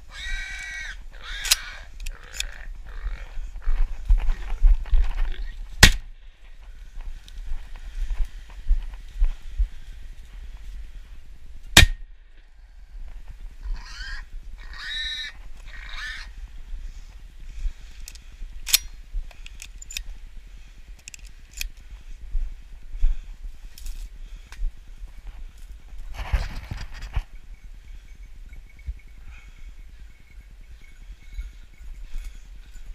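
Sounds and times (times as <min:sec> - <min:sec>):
footsteps on dry ground: 0:02.8 - 0:11.4, 0:20.0 - 0:27.4
shotgun shot: 0:11.8 - 0:12.1.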